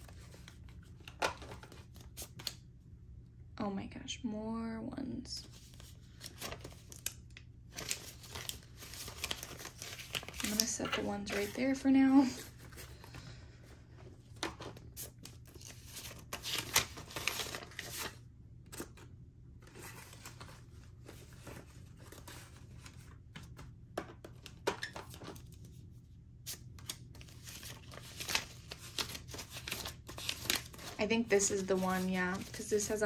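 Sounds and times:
paper banknotes rustling: 0:07.7 - 0:13.4, 0:14.4 - 0:19.0, 0:26.5 - 0:33.0.

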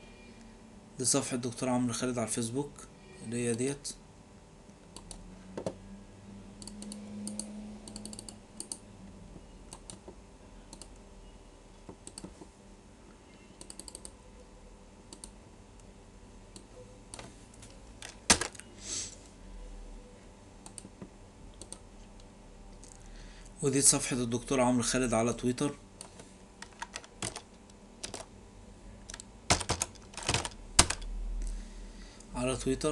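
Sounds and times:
computer keyboard keys clicking: 0:06.6 - 0:08.8, 0:10.7 - 0:10.9, 0:11.9 - 0:12.3, 0:13.6 - 0:14.1, 0:15.1 - 0:15.4, 0:26.0 - 0:28.3, 0:29.1 - 0:31.1.

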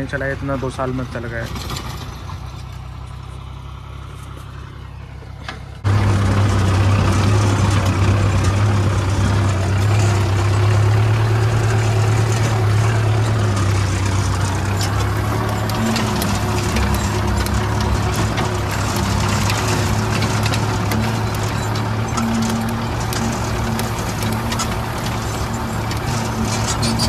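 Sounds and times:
tractor diesel engine humming: 0:00.0 - 0:27.0.

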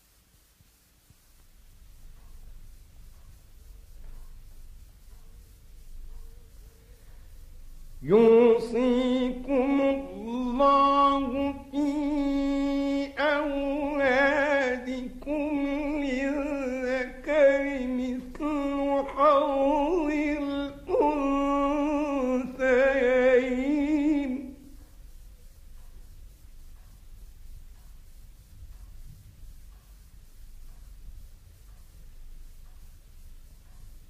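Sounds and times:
man chanting melodic recitation: 0:08.0 - 0:24.8.

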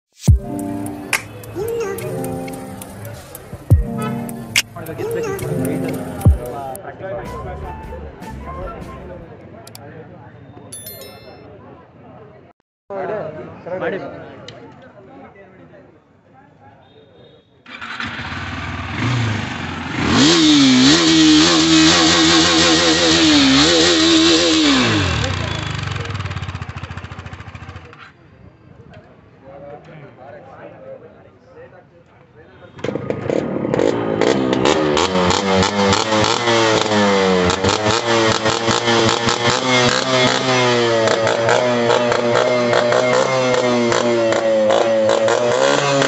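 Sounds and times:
motorcycle engine revving: 0:17.8 - 0:28.0, 0:32.9 - 0:46.0.

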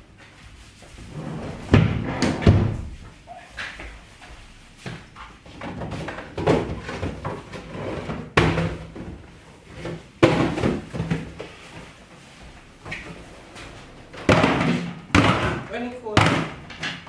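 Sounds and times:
sharp bangs in a wardrobe: 0:01.7 - 0:03.0, 0:08.2 - 0:09.2, 0:09.9 - 0:11.4, 0:14.2 - 0:17.0.

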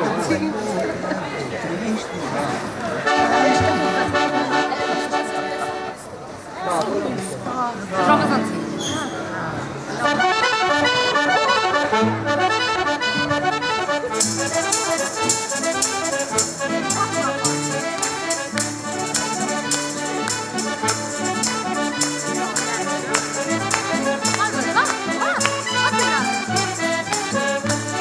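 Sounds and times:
accordions playing: 0:03.0 - 0:06.1, 0:08.0 - 0:08.8, 0:09.9 - 0:28.0
acoustic guitar: 0:07.2 - 0:28.0
steady rhythmic beat: 0:10.5 - 0:28.0.

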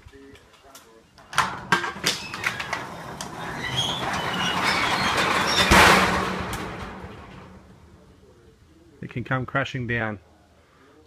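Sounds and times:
garage door clacking and rattling: 0:01.2 - 0:08.0
garage door crashing on floor: 0:01.3 - 0:08.0.

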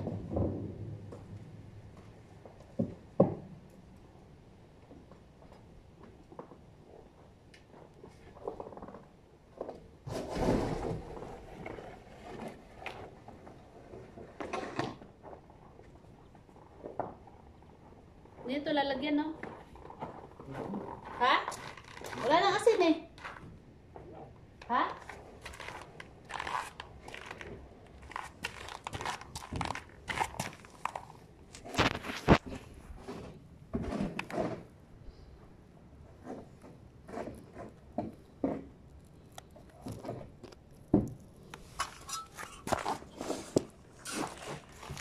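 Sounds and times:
snow shovel scraping paving: 0:21.2 - 0:23.4, 0:25.0 - 0:33.3, 0:41.6 - 0:45.0.

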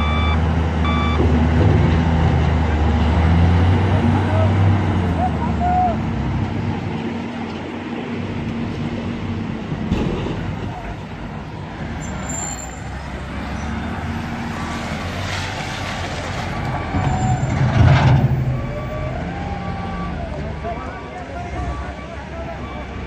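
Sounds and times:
wheel loader diesel engine: 0:00.0 - 0:23.0
loader bucket pushing into coal: 0:15.1 - 0:18.8.

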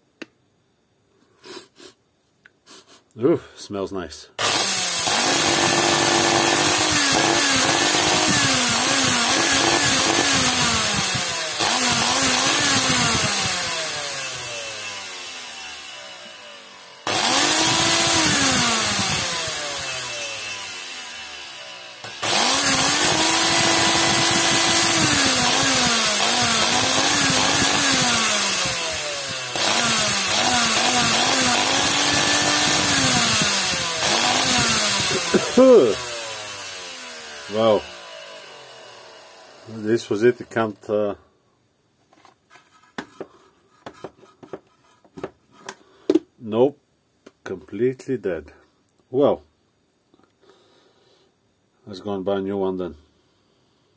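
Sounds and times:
vacuum motor whining: 0:04.4 - 0:39.8.

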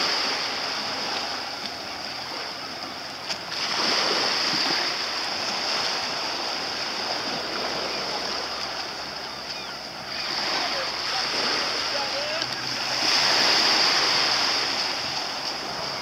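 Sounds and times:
water lapping and splashing: 0:00.0 - 0:16.0
click: 0:12.4 - 0:12.6.

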